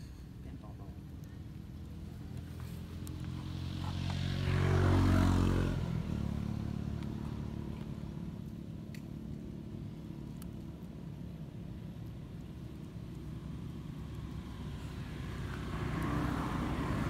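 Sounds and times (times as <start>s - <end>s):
motor engine passing by: 1.5s - 8.7s, 12.4s - 17.0s.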